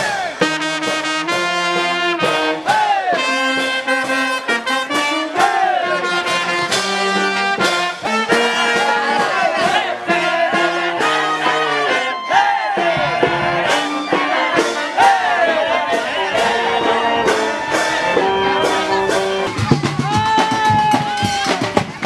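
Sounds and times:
held instrumental notes: 0.2s - 22.0s
gliding melody line: 13.8s - 20.0s.

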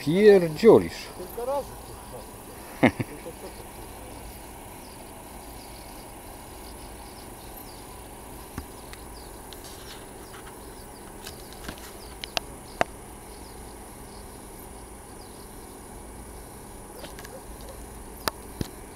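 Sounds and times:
faint insect chirping: 0.0s - 18.9s
steady hiss: 0.0s - 18.9s
sharp clicks: 11.2s - 12.9s.

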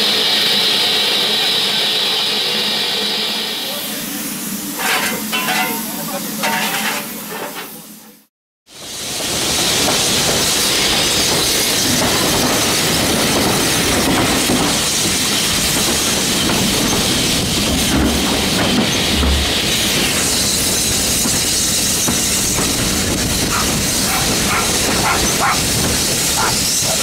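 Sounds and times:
train wheels clickety-clack on rails: 8.7s - 27.0s.

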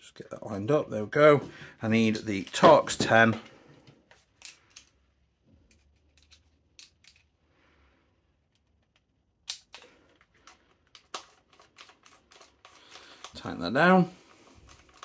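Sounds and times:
faint clicks of handling: 3.4s - 7.4s, 14.2s - 15.0s.

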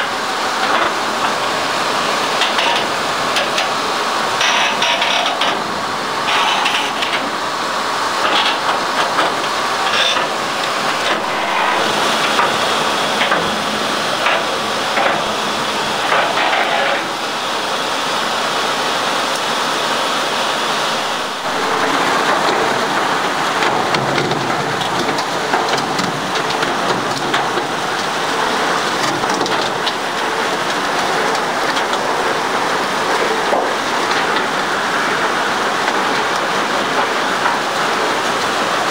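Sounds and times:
water and gravel rushing: 0.1s - 38.9s
mechanical clatter: 4.4s - 7.4s, 21.0s - 28.1s.

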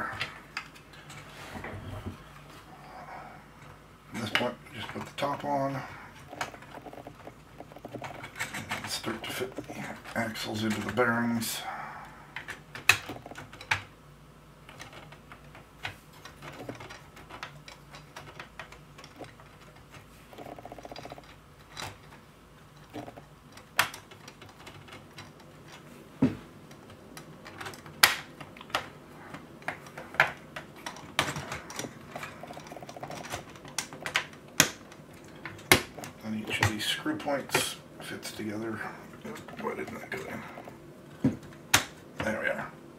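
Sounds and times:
plastic parts clicking and tapping: 6.2s - 11.1s, 12.3s - 13.9s, 14.6s - 37.8s, 39.2s - 42.4s.

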